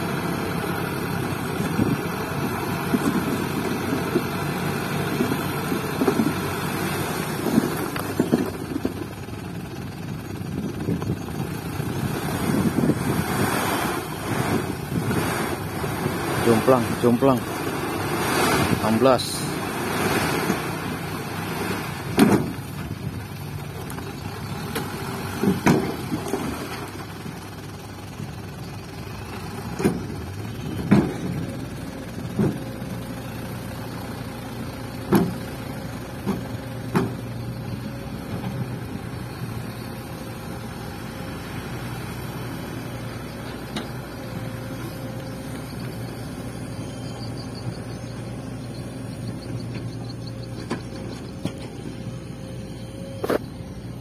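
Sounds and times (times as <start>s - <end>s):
dump truck engine running: 0.0s - 54.0s
truck bed knocks and clunks: 22.1s - 22.6s, 25.4s - 26.4s, 30.7s - 31.3s, 35.1s - 35.4s.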